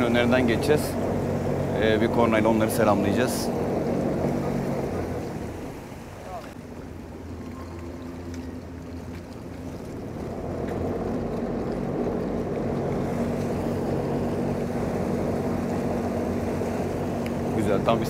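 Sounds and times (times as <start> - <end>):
boat engines and thrusters running: 0.0 - 18.0.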